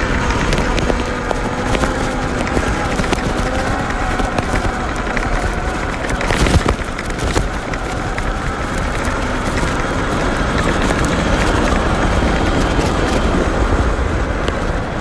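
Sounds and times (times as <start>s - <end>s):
crackle: 0.0s - 15.0s
electric motor whine: 0.0s - 15.0s
wind and tyre noise on dirt: 0.0s - 15.0s.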